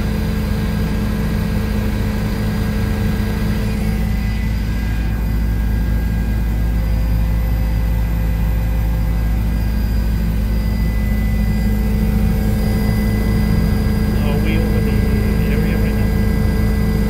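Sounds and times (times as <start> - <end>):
helicopter engine and rotors: 0.0 - 17.0.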